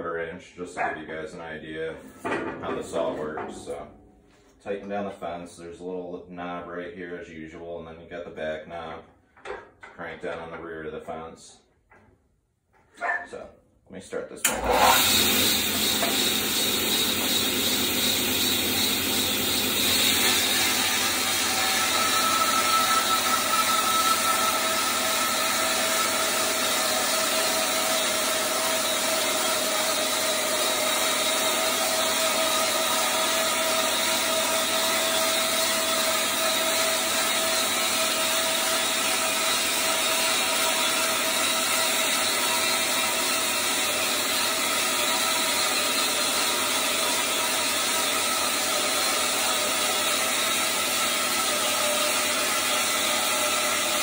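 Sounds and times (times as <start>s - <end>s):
bandsaw motor hum: 14.4s - 54.0s
bandsaw sawing wood: 14.4s - 54.0s.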